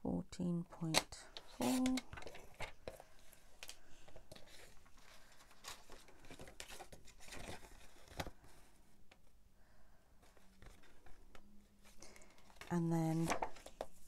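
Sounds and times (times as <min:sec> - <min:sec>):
paper rustling and sliding: 0:01.5 - 0:08.7, 0:10.2 - 0:14.0.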